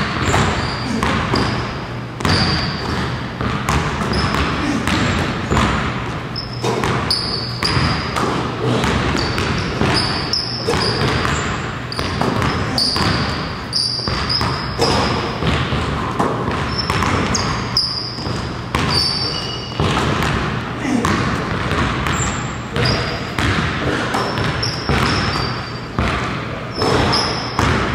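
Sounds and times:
basketballs bouncing on hardwood: 0.0 - 27.9
sneaker squeaks: 0.0 - 27.9.

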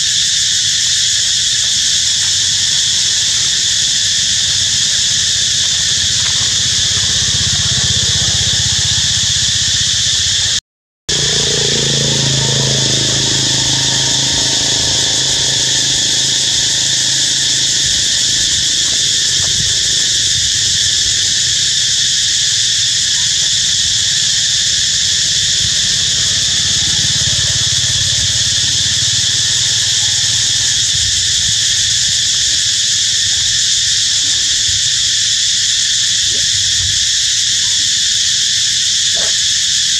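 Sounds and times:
insects droning: 0.0 - 39.9
passing vehicle engine hum: 5.3 - 19.3, 23.2 - 32.0.

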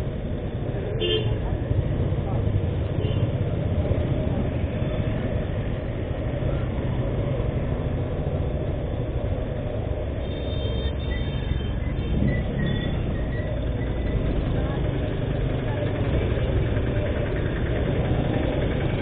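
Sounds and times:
motorcycle engine and road noise: 0.0 - 19.0
street traffic: 0.0 - 19.0.

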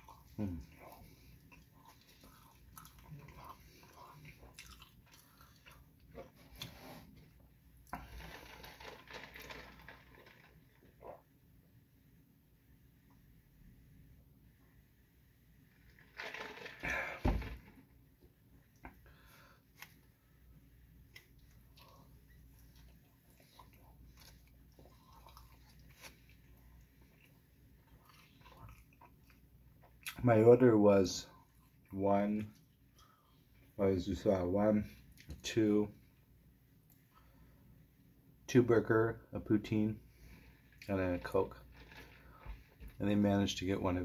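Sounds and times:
person chewing: 0.0 - 6.8, 21.1 - 30.2.

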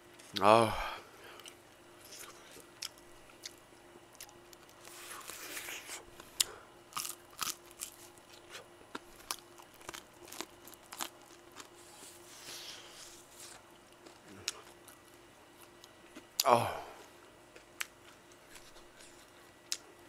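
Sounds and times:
soft chewing: 1.3 - 20.0
crunching fried chicken: 4.2 - 19.8.

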